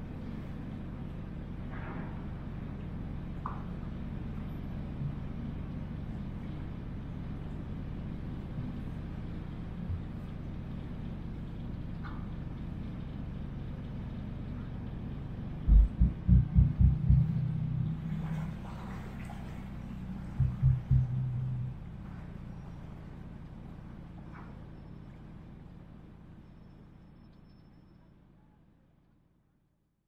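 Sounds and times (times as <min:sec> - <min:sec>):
boat engine rumbling: 0:00.0 - 0:27.3
loud low thumps: 0:15.6 - 0:19.1, 0:20.2 - 0:22.6.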